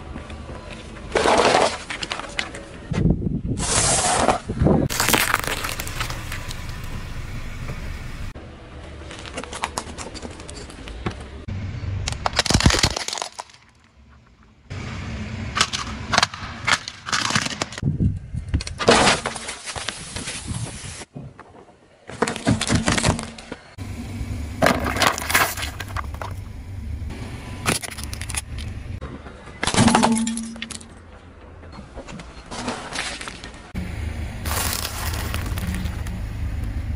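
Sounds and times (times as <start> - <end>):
glass shattering: 4.9 - 6.8.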